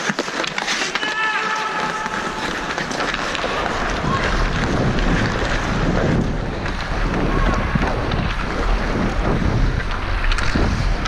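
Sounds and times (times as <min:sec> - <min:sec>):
skate blades scraping ice: 0:00.0 - 0:11.0
steady low hum: 0:02.2 - 0:11.0
wind on microphone: 0:02.2 - 0:11.0.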